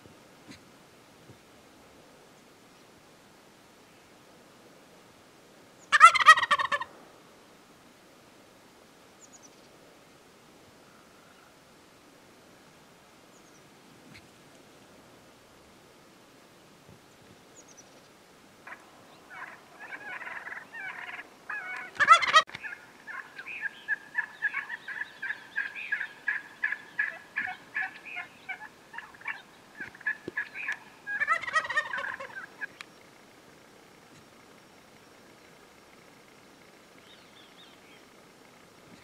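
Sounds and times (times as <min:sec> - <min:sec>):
turkey gobbling: 0:05.9 - 0:06.9, 0:18.6 - 0:32.8
turkey yelping notes: 0:05.9 - 0:06.9, 0:18.6 - 0:32.8.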